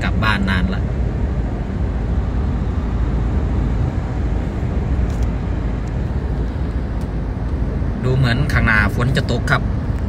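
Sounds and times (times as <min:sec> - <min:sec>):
car driving on highway: 0:00.0 - 0:10.0
tyre and engine noise: 0:00.0 - 0:10.0.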